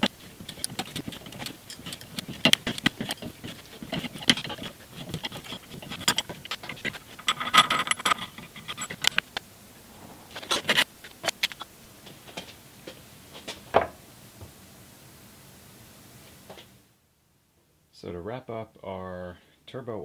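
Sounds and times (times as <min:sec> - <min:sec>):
metal parts clicking: 0:00.0 - 0:09.3
metallic clinks and scraping: 0:00.0 - 0:09.3.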